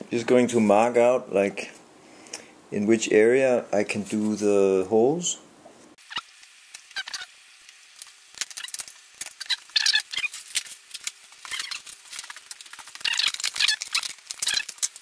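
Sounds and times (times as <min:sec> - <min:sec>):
squeaks scrapes and clicks of handling: 0:06.1 - 0:07.3, 0:08.4 - 0:15.0.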